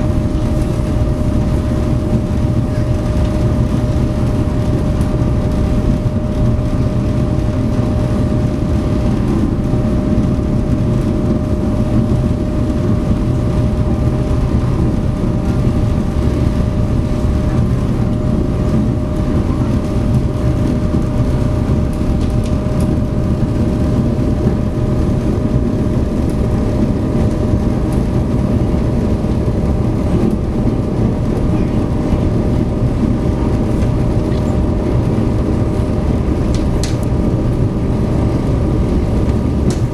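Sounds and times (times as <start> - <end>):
ferry engines droning: 0.0 - 39.9.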